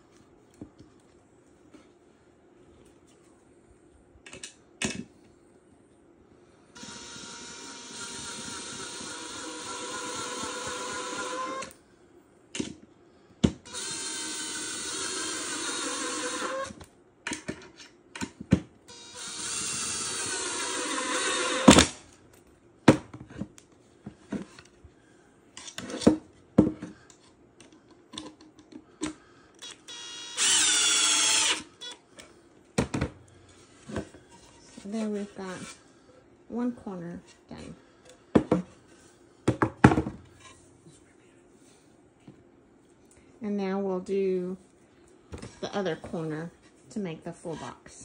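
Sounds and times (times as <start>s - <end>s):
impact driver motor whine: 6.8s - 11.8s, 13.6s - 16.8s, 18.9s - 22.0s, 29.6s - 32.0s.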